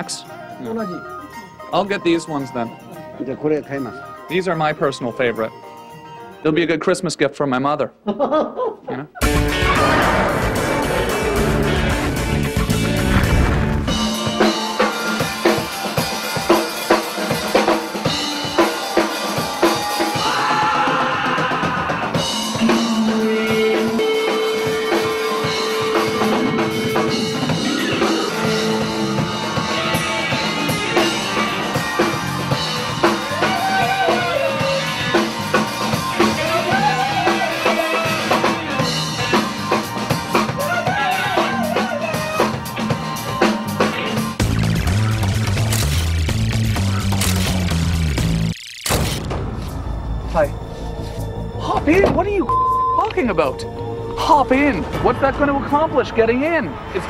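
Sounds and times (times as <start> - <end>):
drum kit beat: 9.2 - 48.5
wavering melody line: 52.3 - 55.2.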